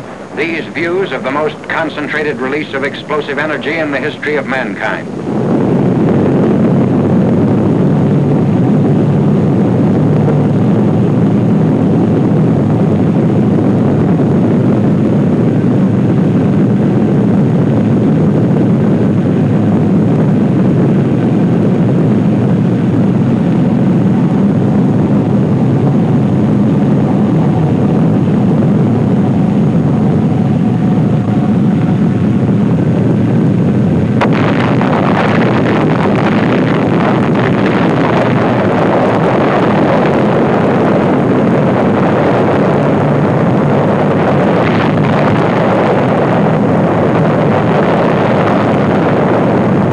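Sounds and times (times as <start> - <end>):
film hiss and crackle: 0.0 - 49.9
explosion roar: 19.0 - 49.9.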